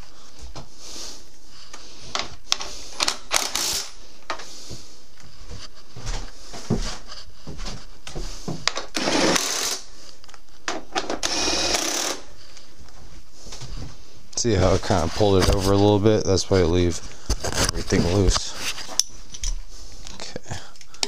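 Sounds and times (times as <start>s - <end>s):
ratchet wrench clicking: 3.3s - 3.9s.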